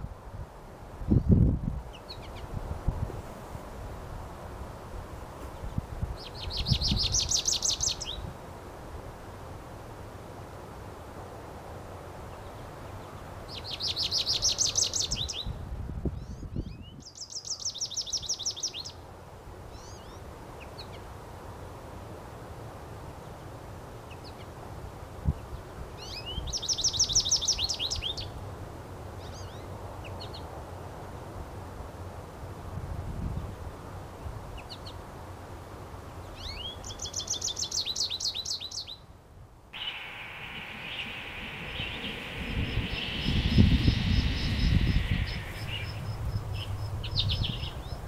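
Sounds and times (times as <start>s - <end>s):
bird chirps: 39.8s - 48.0s
goldfinch trilling: 39.8s - 48.0s.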